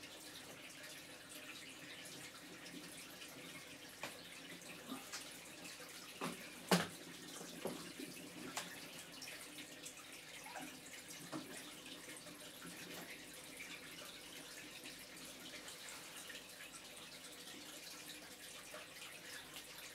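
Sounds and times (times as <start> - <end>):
water trickling in aquarium: 0.0 - 19.9
water drips and bubbly plops: 1.6 - 15.0.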